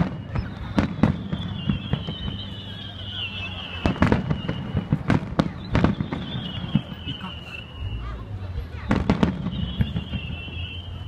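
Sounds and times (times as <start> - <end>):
fireworks bursting: 0.0 - 11.0.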